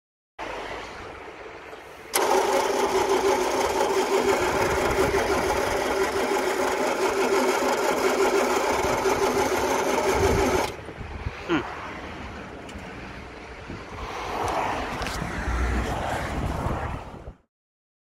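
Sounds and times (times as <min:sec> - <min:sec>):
engine cranked by starter motor: 0:02.1 - 0:10.9.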